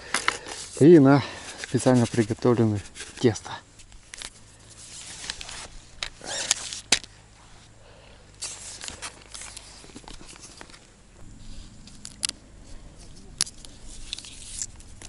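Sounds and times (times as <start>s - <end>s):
plastic cases rustling: 0.0s - 7.1s.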